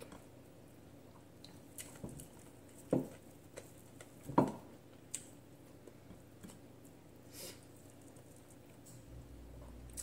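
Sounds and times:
chewing and lip smacking: 0:01.1 - 0:04.2.

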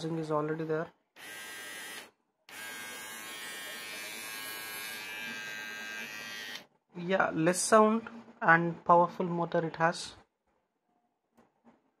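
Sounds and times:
hair trimmer buzzing: 0:01.2 - 0:06.6.

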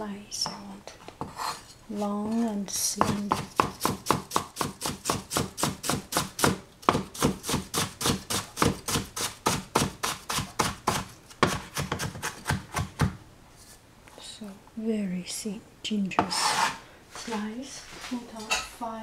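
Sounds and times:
cleaver chopping on plastic board: 0:03.0 - 0:13.2.

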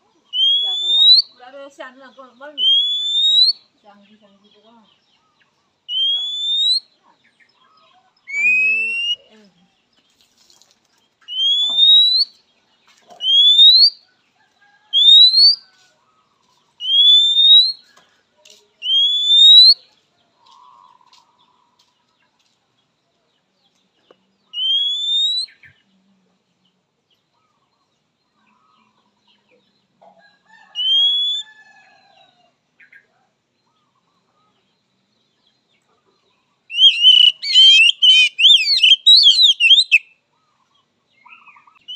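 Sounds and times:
bird giving rising whistles: 0:00.4 - 0:01.3, 0:02.6 - 0:03.6, 0:05.9 - 0:06.8, 0:11.3 - 0:12.3, 0:13.2 - 0:14.0, 0:14.9 - 0:15.6, 0:16.8 - 0:17.8, 0:18.8 - 0:19.8, 0:24.6 - 0:25.5, 0:30.8 - 0:31.5, 0:36.7 - 0:40.0.

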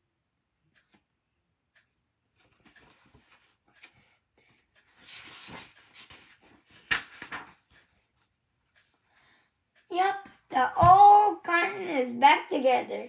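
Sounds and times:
book rustling and rubbing: 0:04.9 - 0:08.3.

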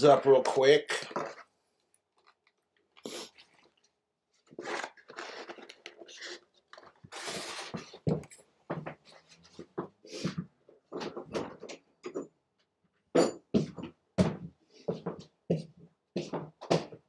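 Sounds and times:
containers rustling and scraping: 0:00.0 - 0:01.6, 0:02.2 - 0:08.4.

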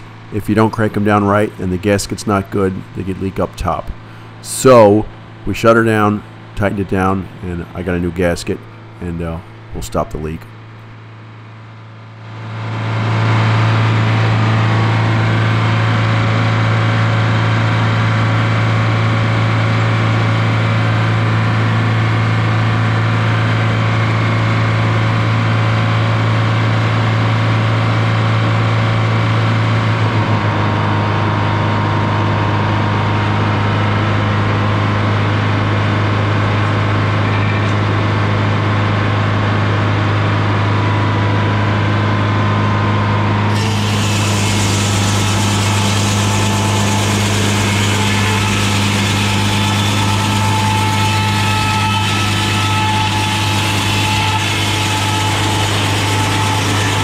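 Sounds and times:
diesel engine droning: 0:00.0 - 0:57.0
saw blade cutting wood: 0:43.5 - 0:57.0.

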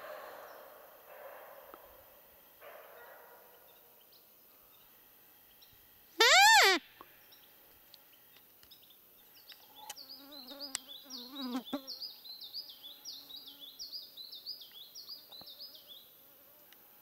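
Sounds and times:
insect buzzing: 0:06.2 - 0:06.8, 0:09.8 - 0:12.1
quick high chirps: 0:06.2 - 0:06.8.

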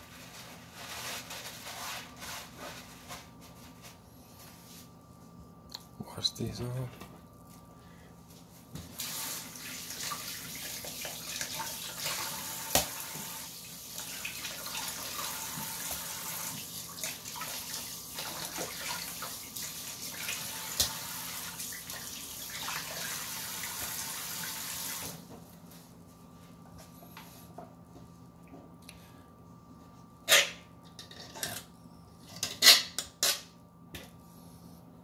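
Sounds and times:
water running from tap: 0:09.0 - 0:25.2.

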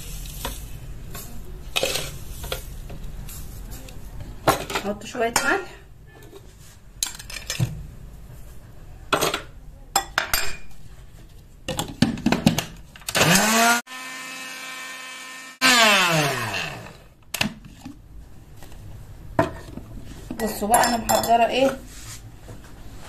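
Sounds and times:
spice grinder motor whine: 0:13.1 - 0:17.1.

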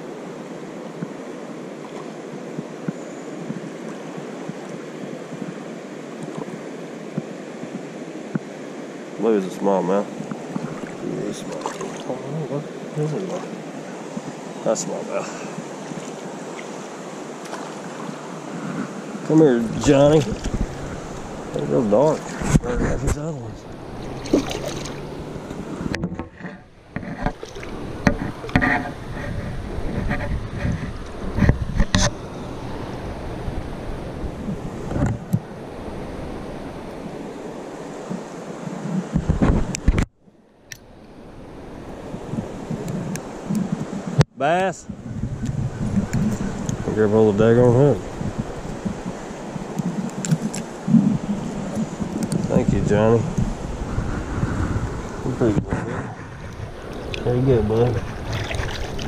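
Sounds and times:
river water running over rocks: 0:00.0 - 0:44.6, 0:45.4 - 0:55.6, 0:56.2 - 0:59.0
water splashing around wading legs: 0:10.2 - 0:12.3, 0:13.0 - 0:14.4, 0:15.6 - 0:18.4, 0:19.7 - 0:22.6, 0:23.7 - 0:25.7, 0:27.2 - 0:28.9, 0:56.5 - 0:59.0.

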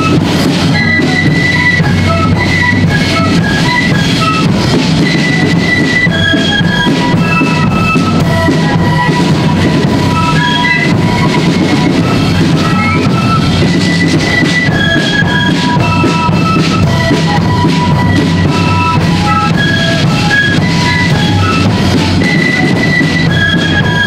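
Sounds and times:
flutes playing melody: 0:00.0 - 0:24.0
snare and bass drum beats: 0:00.0 - 0:24.0.

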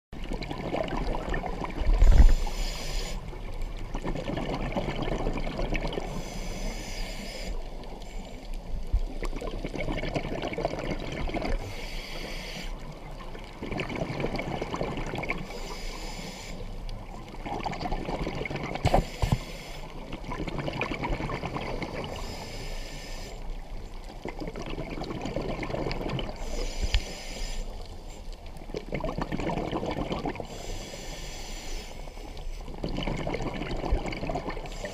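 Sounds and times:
diver breathing through regulator: 0:02.0 - 0:03.4, 0:06.0 - 0:08.4, 0:11.6 - 0:12.8, 0:15.4 - 0:16.8, 0:18.8 - 0:20.0, 0:21.7 - 0:23.5, 0:26.4 - 0:28.2, 0:30.4 - 0:32.6.

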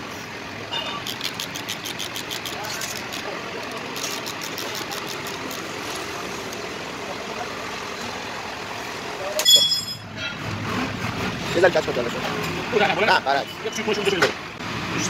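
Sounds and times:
workshop machinery drone: 0:00.0 - 0:12.7
ratchet clicks: 0:01.0 - 0:06.6
loud metallic ring: 0:09.4 - 0:10.4.

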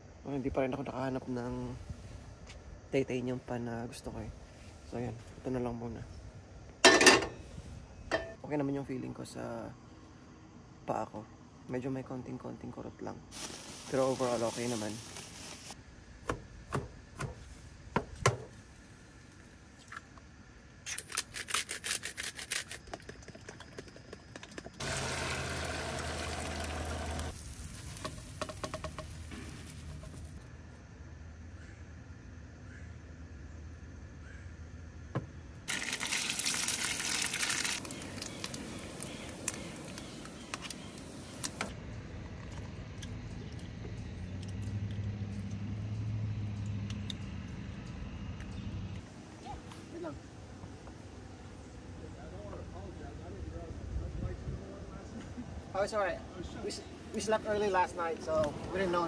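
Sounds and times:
meat sizzling in oil: 0:24.8 - 0:30.4, 0:35.7 - 0:41.5
crackling pops: 0:35.7 - 0:41.8.

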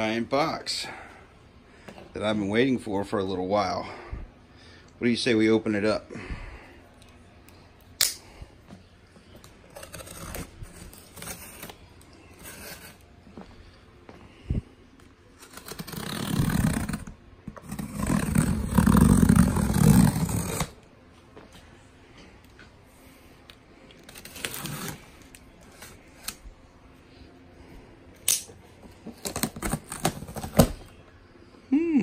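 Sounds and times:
knife slicing through packing tape: 0:15.4 - 0:20.8, 0:24.1 - 0:26.4.

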